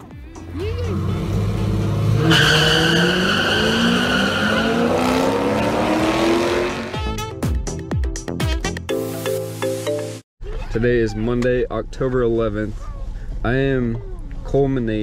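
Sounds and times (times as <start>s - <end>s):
drag car engine accelerating: 0.5s - 7.0s
tire screech: 0.8s - 6.9s.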